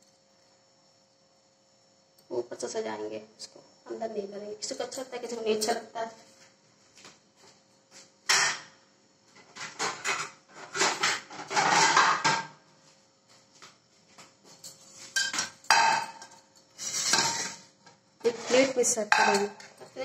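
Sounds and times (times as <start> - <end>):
crockery and cutlery clattering: 9.6 - 12.5, 14.6 - 17.6, 19.1 - 20.0.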